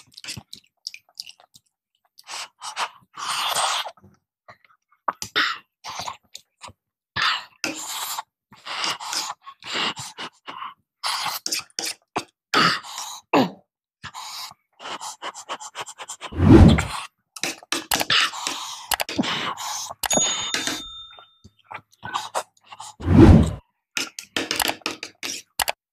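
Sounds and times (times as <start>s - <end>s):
man chewing and slurping: 0.0s - 3.9s.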